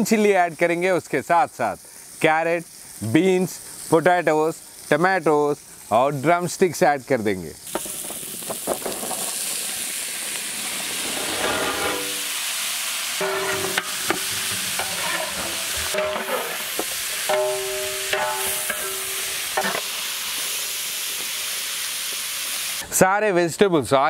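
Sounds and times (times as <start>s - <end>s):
vegetables sizzling in oil: 0.0s - 22.9s
metal spatula scraping pot: 11.2s - 12.4s, 13.2s - 19.8s.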